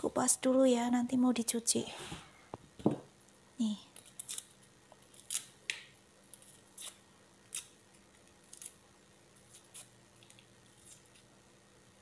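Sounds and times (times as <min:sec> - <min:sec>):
knife scraping garlic skin: 0:04.0 - 0:05.6, 0:06.3 - 0:08.8, 0:09.4 - 0:11.3.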